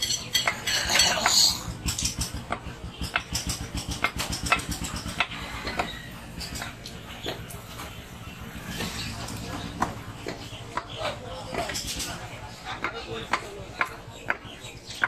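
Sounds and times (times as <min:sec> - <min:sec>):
cleaver chopping meat on wood: 0:02.0 - 0:07.4, 0:09.8 - 0:11.9, 0:12.7 - 0:15.0.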